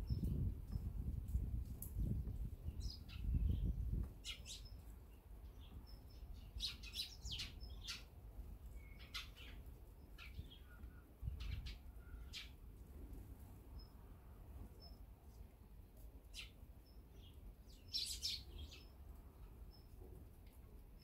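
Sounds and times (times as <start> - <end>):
sparrows chirping: 0.0 - 0.5, 2.3 - 12.6, 13.6 - 15.1, 16.2 - 20.0.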